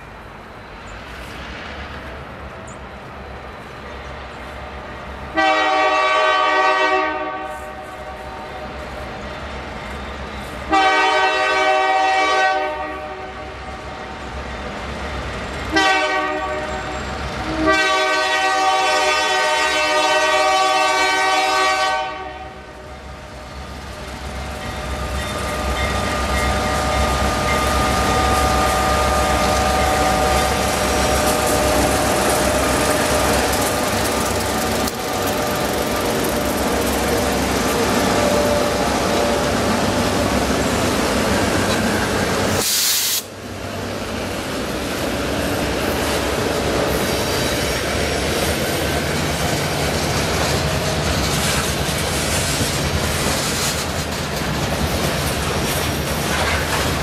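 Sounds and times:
locomotive horn blasts: 5.3 - 8.5, 10.7 - 13.5, 15.7 - 16.9, 17.5 - 22.7, 28.1 - 32.1, 37.8 - 40.0
locomotive engines: 22.5 - 57.0
freight cars rolling past: 22.9 - 42.6.

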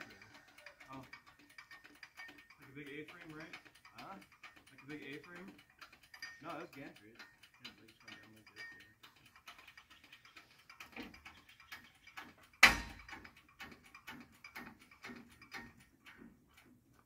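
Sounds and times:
engine hoist mechanical clicks: 0.0 - 17.0
loud metal clunk: 12.6 - 13.1.

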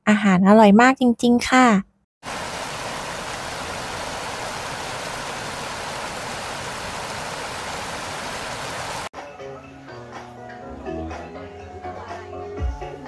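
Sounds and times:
river rushing: 2.2 - 9.1.

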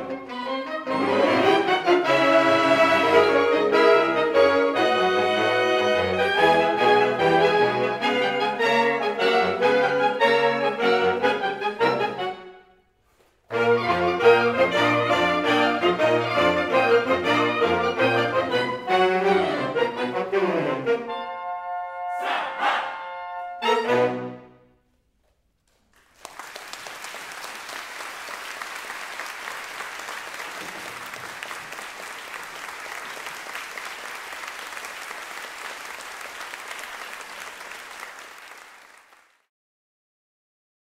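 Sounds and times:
saxophone ensemble chords: 0.0 - 12.8, 13.5 - 25.0
audience applauding: 25.7 - 39.5.

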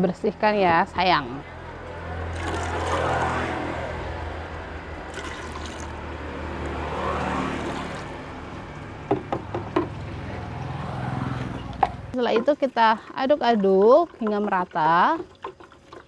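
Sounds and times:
liquid pouring into bucket: 2.3 - 3.7, 4.4 - 6.0, 12.4 - 16.0
jug knocking on bucket: 9.0 - 10.0, 11.8 - 16.0.

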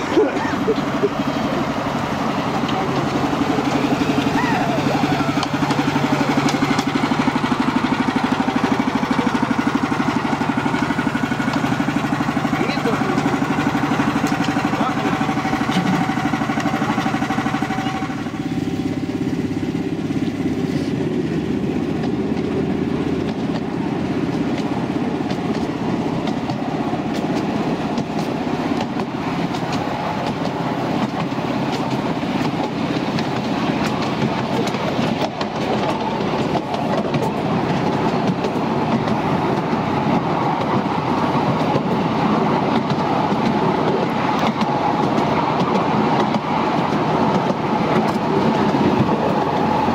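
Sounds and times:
locomotive engine running: 0.0 - 49.9
train wheels rumbling on rails: 0.0 - 49.9.

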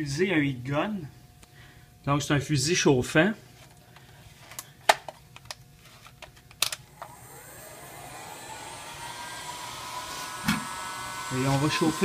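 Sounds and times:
heat gun fan whirring: 3.6 - 12.0.

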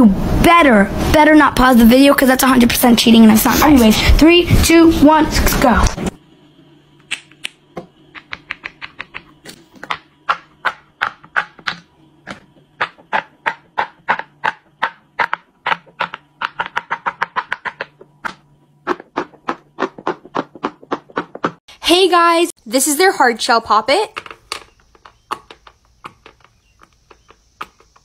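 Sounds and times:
silicone poppers popping: 7.0 - 21.6, 23.9 - 28.0.

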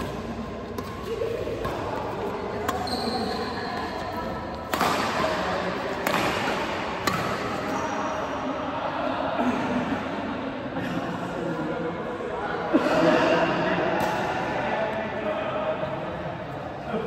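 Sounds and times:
badminton racket hitting shuttlecock: 0.0 - 7.9
shoe squeak: 2.7 - 4.3.

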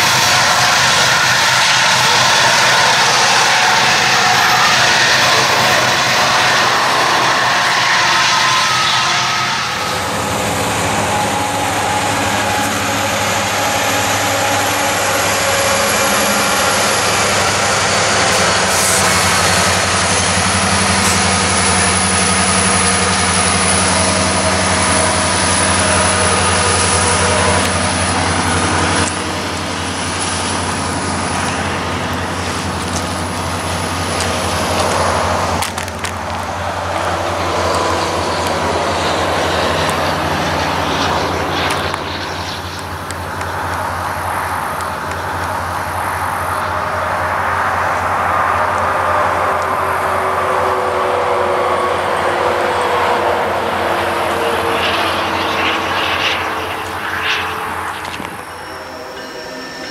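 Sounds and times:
locomotive engines droning: 0.0 - 59.9
train rumble: 0.0 - 59.9.

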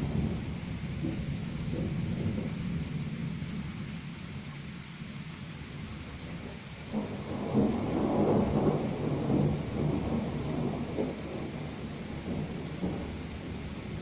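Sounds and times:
rolling thunder: 0.0 - 3.4, 6.2 - 14.0.

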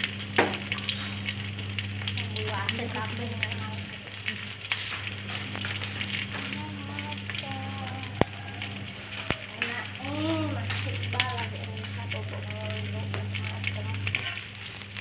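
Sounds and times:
fish sizzling in oil: 0.0 - 15.0
popping crackles: 0.0 - 15.0.

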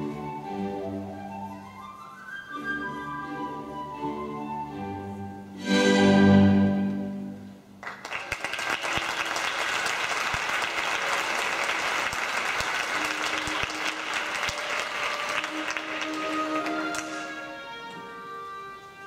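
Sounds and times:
faint musical tones: 0.0 - 7.7, 12.7 - 19.0
orchestral string music: 0.0 - 7.8, 11.1 - 19.0
audience applause: 7.8 - 17.4.

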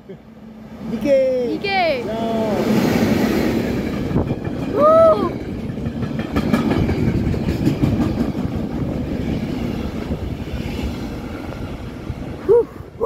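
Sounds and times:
train wheels rumbling on rails: 2.1 - 13.0
train wheel clacks: 2.8 - 11.0.

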